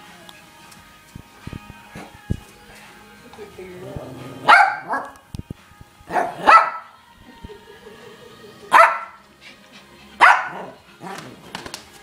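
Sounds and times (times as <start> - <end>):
small dog barking: 4.5 - 5.2, 6.1 - 6.9, 8.7 - 9.2, 10.2 - 10.8.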